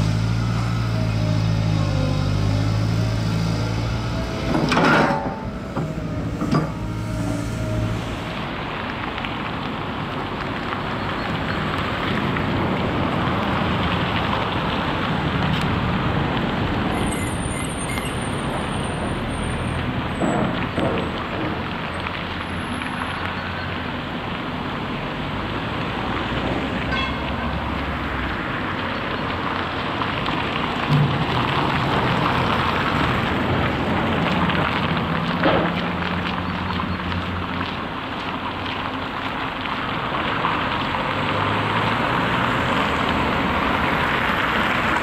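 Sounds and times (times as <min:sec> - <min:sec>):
low engine hum: 0:00.0 - 0:09.2
diesel machinery rumble: 0:00.0 - 0:26.1, 0:26.7 - 0:45.0
traffic noise: 0:00.0 - 0:45.0.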